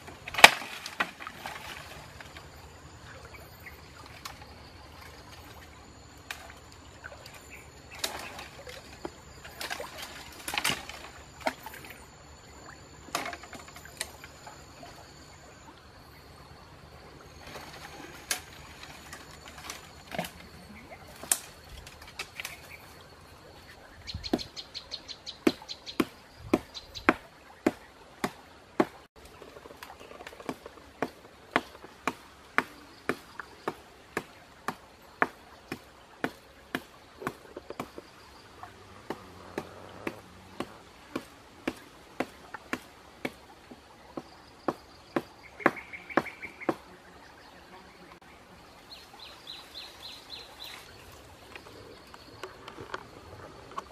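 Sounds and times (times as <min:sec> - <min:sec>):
dry branches cracking and rustling: 0:00.0 - 0:02.4, 0:07.9 - 0:11.7, 0:17.4 - 0:22.9
faint high insect drone: 0:00.0 - 0:53.9.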